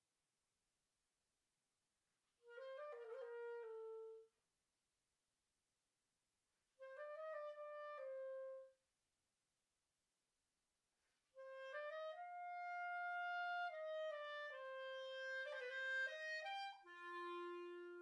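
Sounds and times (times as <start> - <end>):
solo clarinet: 2.4 - 4.4, 6.8 - 8.8, 11.3 - 18.0.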